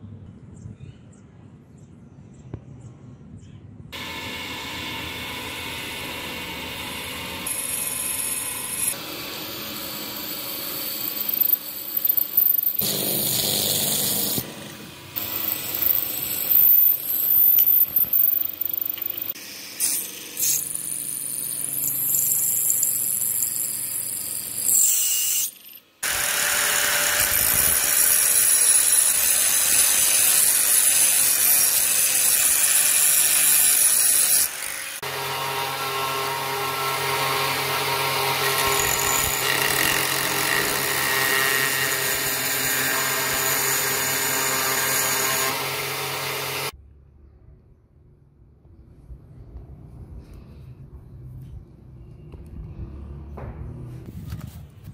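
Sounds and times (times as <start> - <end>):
angle grinder grinding metal: 4.0 - 46.8
drill boring through steel: 4.0 - 46.8.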